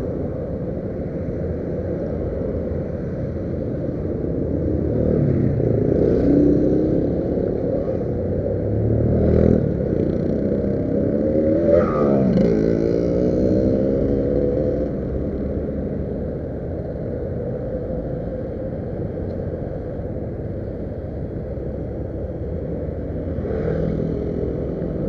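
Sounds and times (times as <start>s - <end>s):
road noise: 0.0s - 25.0s
wind rushing over microphone: 0.0s - 25.0s.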